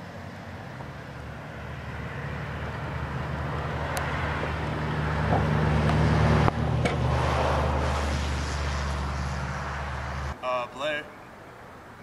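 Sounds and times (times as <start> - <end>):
car driving slowly: 0.0 - 10.4.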